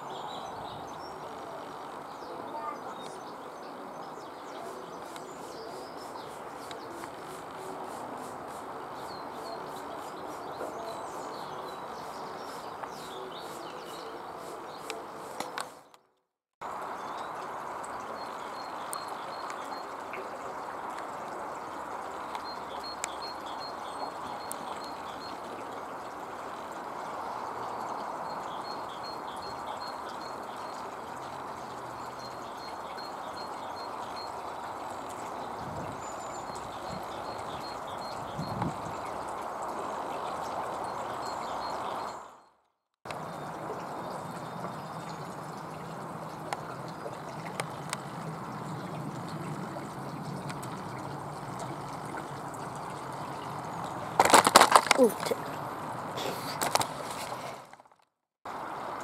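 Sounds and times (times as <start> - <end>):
birds chirping: 0.0 - 16.1, 16.8 - 42.5, 52.4 - 57.6.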